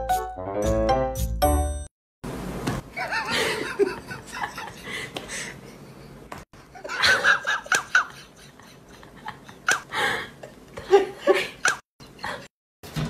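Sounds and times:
person giggling: 0:03.0 - 0:05.8, 0:06.7 - 0:12.5.

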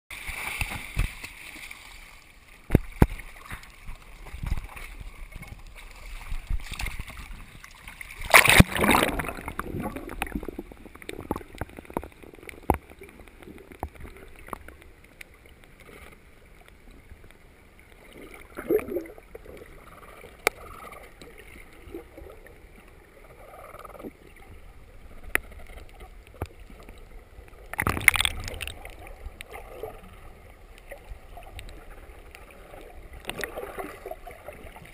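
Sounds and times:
underwater gurgling and sloshing: 0:00.1 - 0:34.9
water splashing: 0:00.1 - 0:34.9
sharp underwater clicks and knocks: 0:00.4 - 0:01.4, 0:02.6 - 0:07.5, 0:08.2 - 0:16.1, 0:25.2 - 0:27.0, 0:27.6 - 0:29.6, 0:33.2 - 0:33.6.

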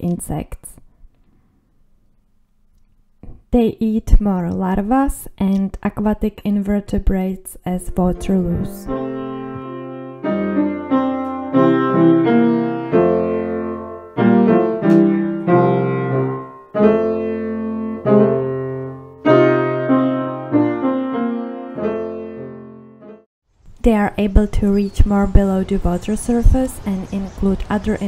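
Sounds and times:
slow piano music: 0:08.0 - 0:23.3.

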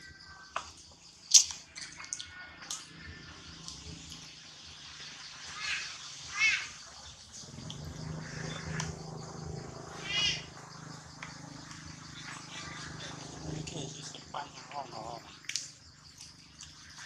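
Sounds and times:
steady low hum: 0:07.2 - 0:17.0
baby monkey squealing: 0:10.0 - 0:10.5.

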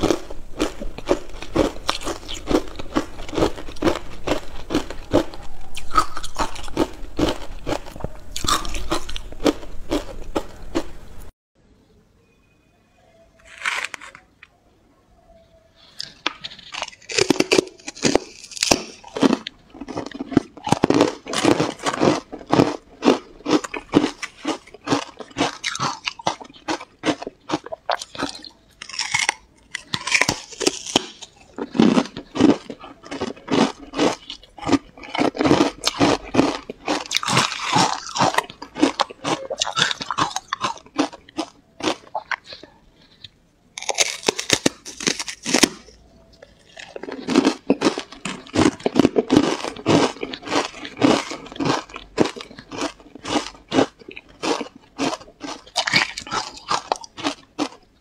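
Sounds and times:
ice being chewed and crunched: 0:00.0 - 0:10.9, 0:16.0 - 0:57.9.

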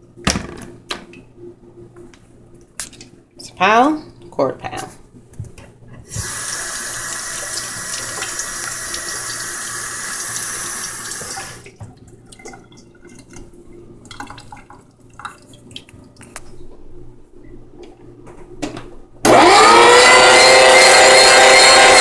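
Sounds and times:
tap running into sink: 0:06.1 - 0:09.4.

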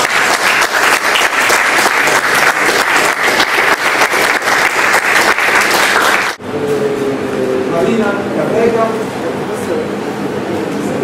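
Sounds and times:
small group applauding: 0:00.0 - 0:06.4.

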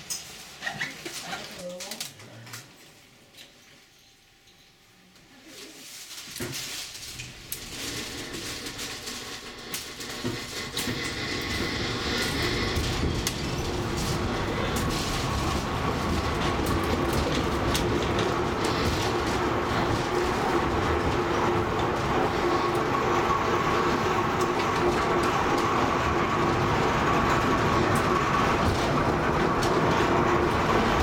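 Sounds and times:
wheels rumbling on rail: 0:06.4 - 0:31.0.

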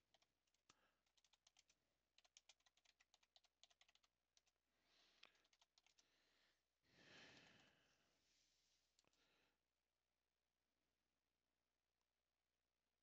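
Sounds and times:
faint keyboard typing: 0:00.0 - 0:06.2.

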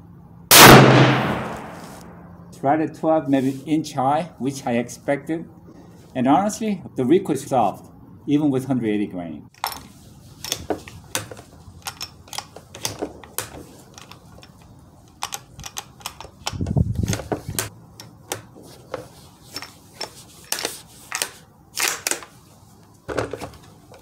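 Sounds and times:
rifle bolt action clicks: 0:10.5 - 0:18.5.

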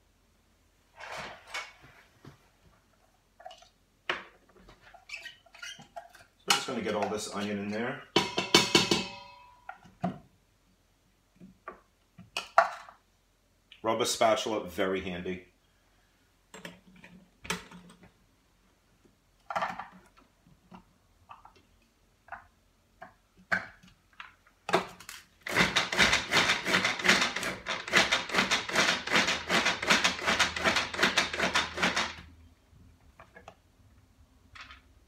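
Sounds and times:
hand-cranked food processor clicking: 0:25.5 - 0:32.2.

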